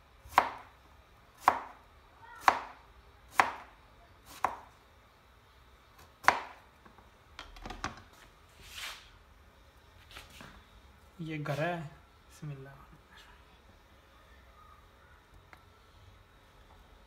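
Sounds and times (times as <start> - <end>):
knife chopping on plastic board: 0.3 - 0.7, 1.4 - 1.8, 2.4 - 3.7, 4.3 - 4.7, 6.2 - 6.6.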